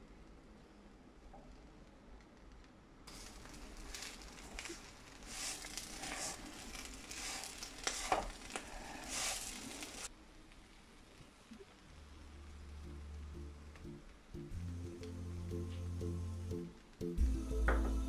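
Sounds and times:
light sizzle: 0:00.0 - 0:18.0
plastic spatula scraping a pan: 0:03.2 - 0:10.1.

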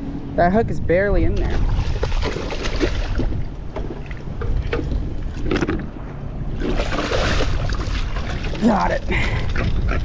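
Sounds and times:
wind rumbling on microphone: 0:00.0 - 0:10.0
fish splashing: 0:01.5 - 0:03.3, 0:06.6 - 0:09.0
sharp knocks on boat: 0:02.0 - 0:05.9.

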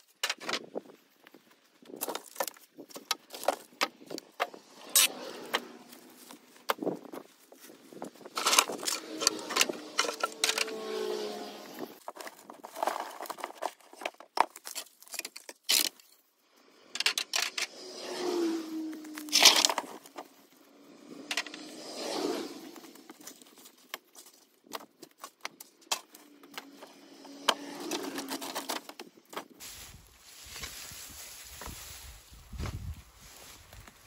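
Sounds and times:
rustling scrapes: 0:00.7 - 0:16.2, 0:16.9 - 0:34.0
wooden boards knocking and scraping: 0:01.9 - 0:04.6.

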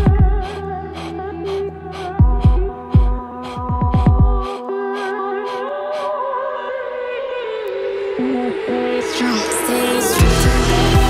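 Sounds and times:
deep bass and drum beat: 0:00.0 - 0:00.5, 0:02.2 - 0:04.5, 0:10.2 - 0:11.0
rising sweep: 0:07.8 - 0:11.0.

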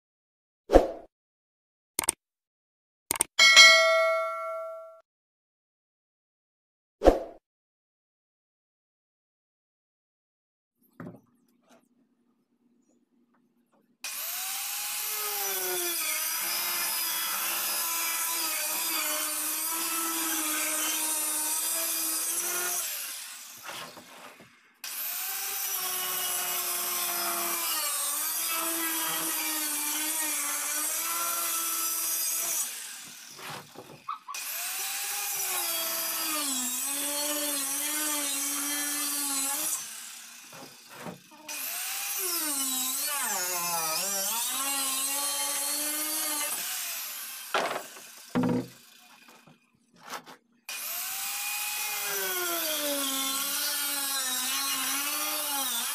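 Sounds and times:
circular saw cutting plastic: 0:27.0 - 0:55.9.

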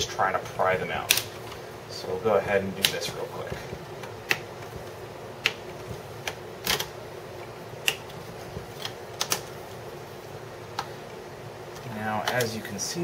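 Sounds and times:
plastic clips snapping: 0:01.0 - 0:01.6, 0:11.8 - 0:12.5.

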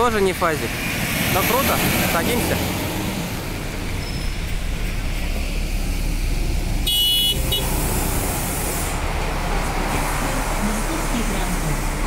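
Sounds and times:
street traffic rumble: 0:00.0 - 0:12.0
hiss: 0:08.0 - 0:09.0.

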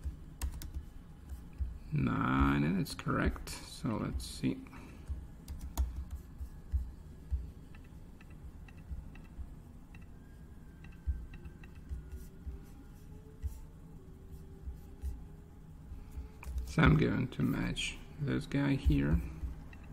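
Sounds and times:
computer mouse clicks: 0:05.0 - 0:10.1, 0:10.8 - 0:12.2.

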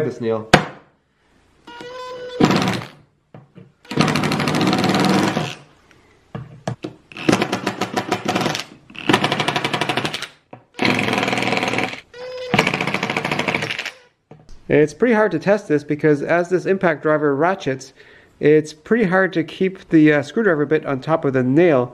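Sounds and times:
impact driver hammering rattle: 0:03.9 - 0:05.4.

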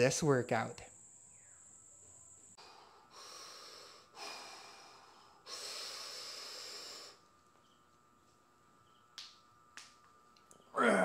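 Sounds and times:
man breathing deeply: 0:02.6 - 0:07.3.

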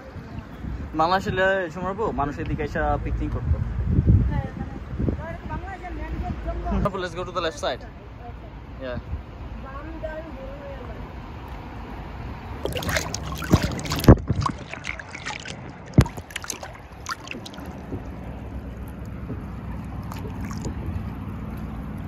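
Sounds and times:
rushing river water: 0:12.5 - 0:22.0
water slapping kayak hull: 0:12.6 - 0:22.0.

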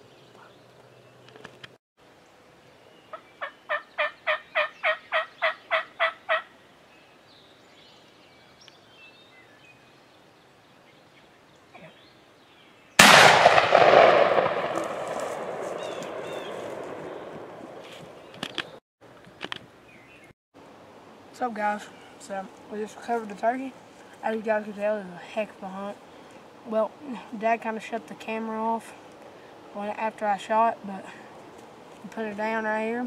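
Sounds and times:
turkey yelps: 0:03.1 - 0:06.5
shotgun shot: 0:13.0 - 0:17.8.

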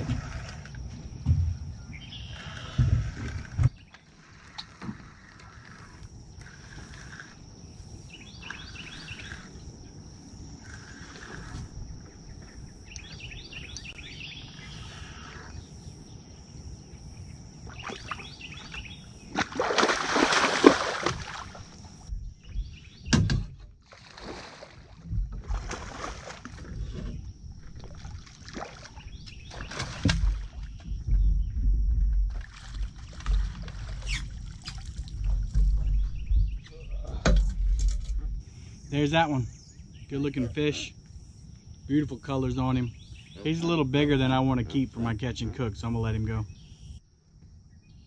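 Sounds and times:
fish splashing at surface: 0:19.4 - 0:21.6.

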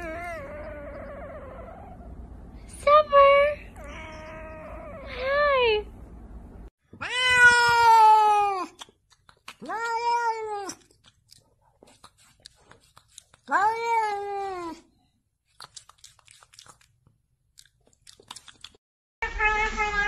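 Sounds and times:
cat meowing: 0:07.0 - 0:08.7, 0:19.2 - 0:20.0.

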